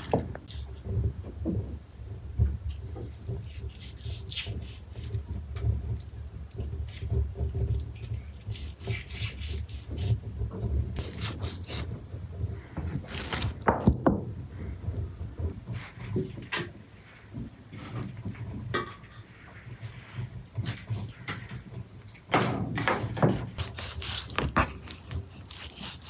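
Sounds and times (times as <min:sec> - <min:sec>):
rubbing and scraping strokes: 0:19.0 - 0:21.9, 0:23.4 - 0:26.0.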